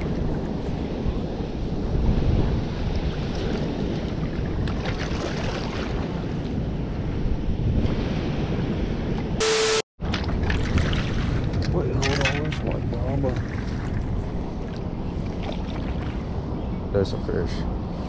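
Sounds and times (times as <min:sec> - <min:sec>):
wind buffeting microphone: 0:00.0 - 0:09.4, 0:10.0 - 0:18.0
spillway water rushing: 0:02.8 - 0:06.4, 0:10.0 - 0:16.6.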